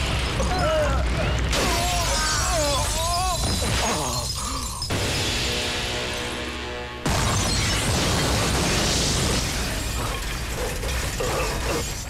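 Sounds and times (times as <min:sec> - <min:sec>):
vehicle crash: 0:00.0 - 0:12.0
rumbling explosion blast: 0:07.0 - 0:10.0
clatter of metal debris: 0:07.1 - 0:12.0.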